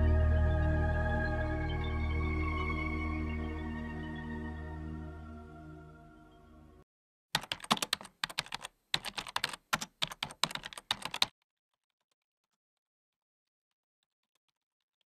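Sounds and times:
soft ambient music: 0:00.0 - 0:06.8
computer keyboard typing: 0:07.4 - 0:11.3.

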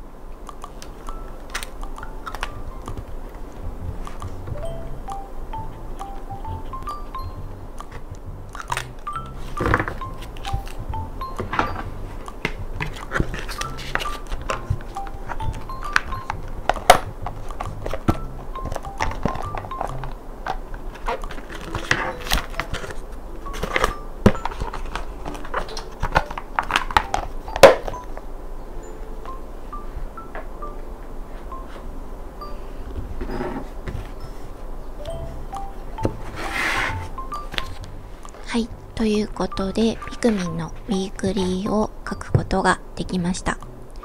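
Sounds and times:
soft background music: 0:00.0 - 0:44.0
plastic case clicking and knocking: 0:11.4 - 0:23.0.

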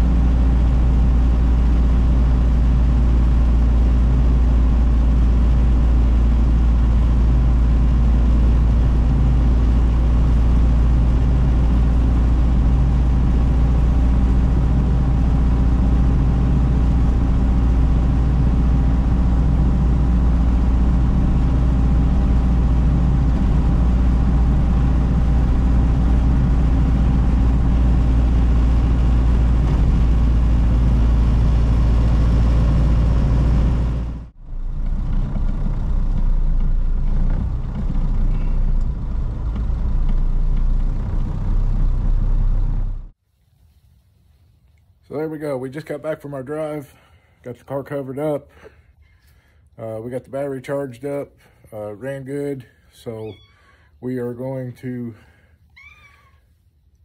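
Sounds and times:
car engine running: 0:00.0 - 0:43.2
road noise: 0:00.0 - 0:43.2.

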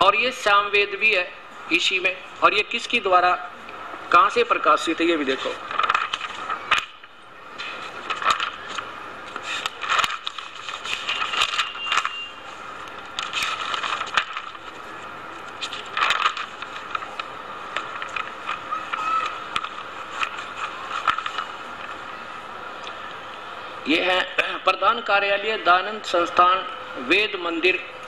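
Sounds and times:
book pages turning: 0:05.4 - 0:22.0.

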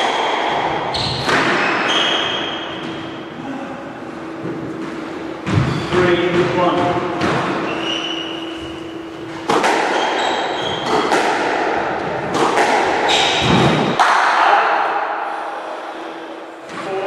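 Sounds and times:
squash ball hits echoing: 0:00.0 - 0:03.2, 0:04.2 - 0:15.2
shoes squeaking on wooden floor: 0:04.2 - 0:09.4, 0:10.0 - 0:11.0.

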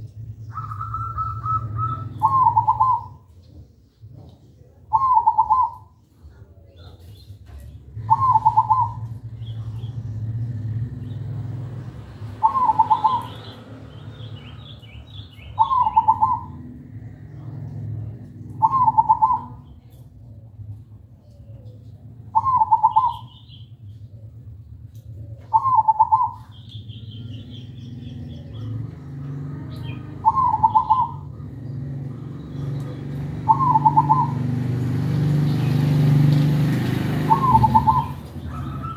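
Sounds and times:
small birds chirping: 0:00.0 - 0:38.9
dove cooing trilled song: 0:00.3 - 0:03.6, 0:04.9 - 0:05.9, 0:07.9 - 0:09.9, 0:12.3 - 0:20.5, 0:21.2 - 0:34.8, 0:37.0 - 0:38.9.

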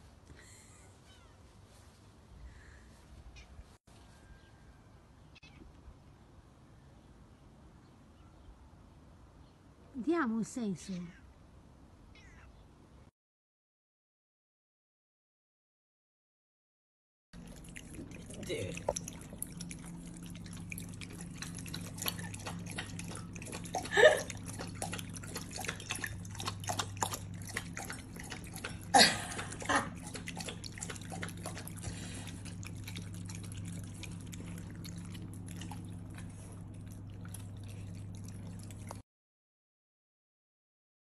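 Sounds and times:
cat lapping water: 0:17.4 - 0:39.0.

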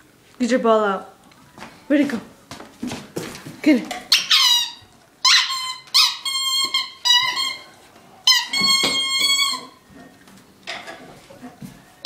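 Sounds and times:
dog toy squeaking: 0:04.1 - 0:09.8.

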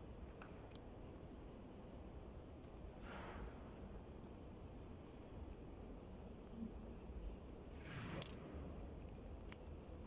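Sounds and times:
soft rustle: 0:01.1 - 0:10.0.

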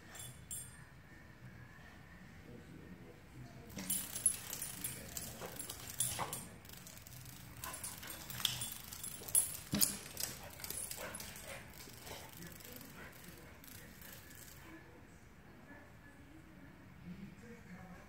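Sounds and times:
dog claws tapping on hard floor: 0:03.8 - 0:06.5, 0:07.6 - 0:12.3.

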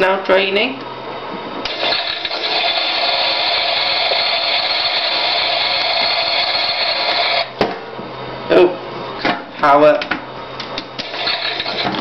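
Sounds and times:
small electric motor whirring: 0:01.7 - 0:07.5.

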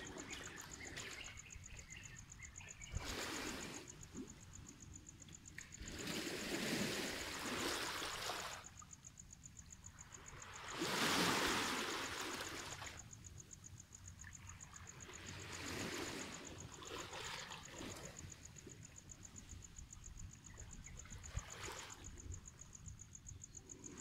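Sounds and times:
high pulsing insect trill: 0:00.0 - 0:24.0
waves washing over pebble beach: 0:10.6 - 0:12.8.

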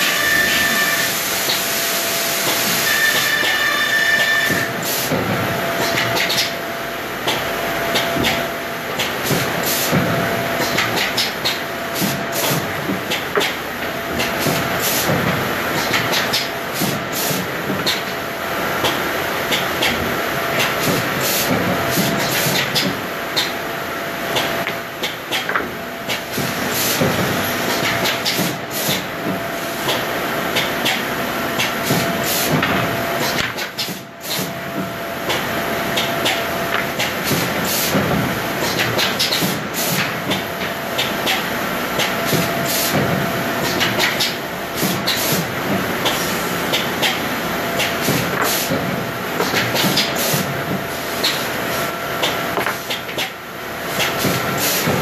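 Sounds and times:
woodworking machinery hiss: 0:00.0 - 0:05.2.

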